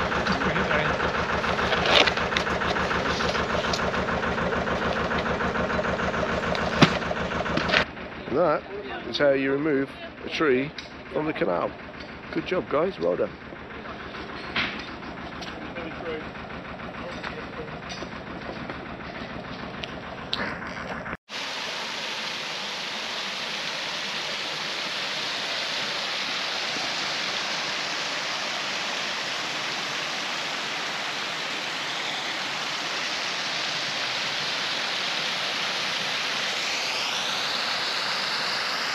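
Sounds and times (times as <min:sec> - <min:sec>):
engine running: 0:00.0 - 0:38.9.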